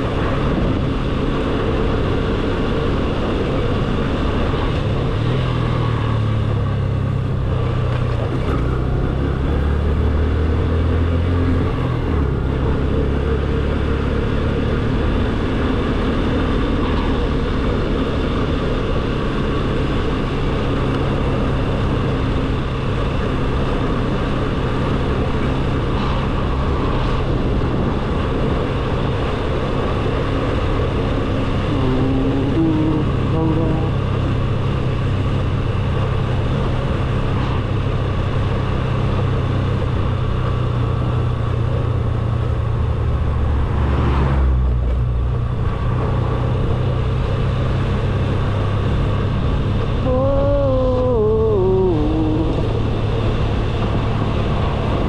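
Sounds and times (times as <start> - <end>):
motorcycle engine cruising: 0.0 - 55.0
wind and road noise: 0.0 - 55.0.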